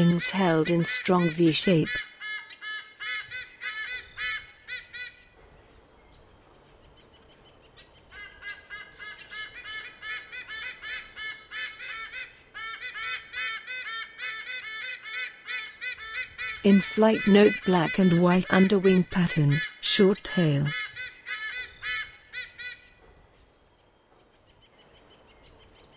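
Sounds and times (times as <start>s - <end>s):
eagles honking calls: 0.0s - 5.3s, 8.5s - 23.0s.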